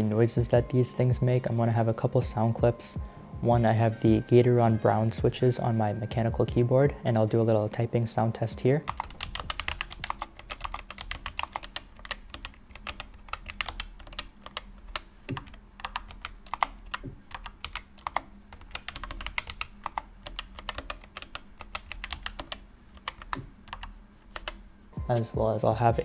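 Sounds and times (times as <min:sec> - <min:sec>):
fast typing on mechanical keyboard: 0:08.9 - 0:24.6.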